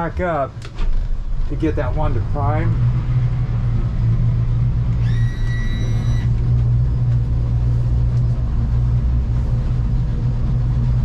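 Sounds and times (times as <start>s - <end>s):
outboard motor running: 4.8s - 10.9s
high electronic beep: 5.0s - 6.3s.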